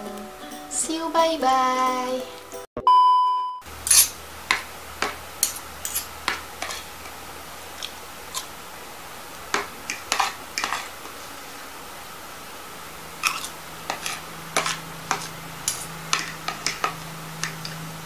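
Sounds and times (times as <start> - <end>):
test-tone beep: 2.8 - 3.6
cutlery clinking on a plate: 3.9 - 4.2, 5.0 - 6.8.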